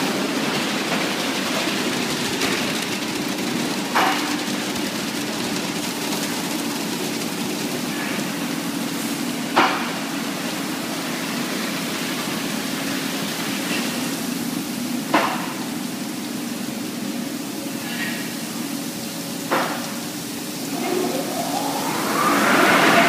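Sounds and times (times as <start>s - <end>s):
machinery hum: 20.1s - 23.0s.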